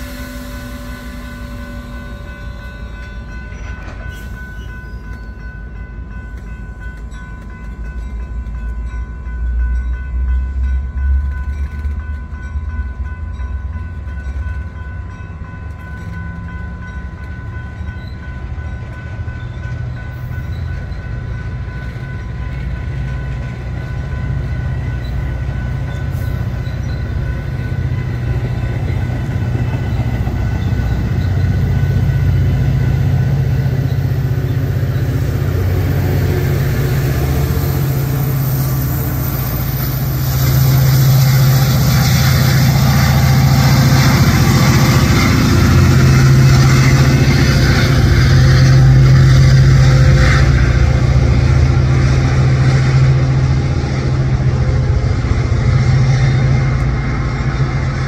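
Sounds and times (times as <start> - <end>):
diesel locomotive engine: 0.0 - 58.0.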